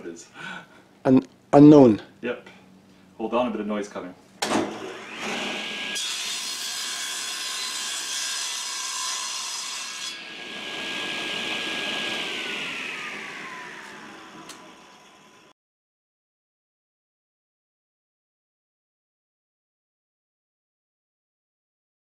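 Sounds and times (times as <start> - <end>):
saw blade cutting wood: 4.6 - 15.5
table saw motor whining: 4.6 - 15.5.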